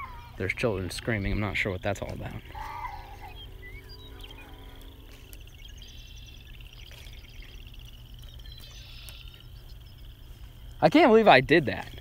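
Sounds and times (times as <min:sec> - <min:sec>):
low rumble: 0:00.0 - 0:10.8
high-pitched pulsed trill: 0:02.4 - 0:09.6.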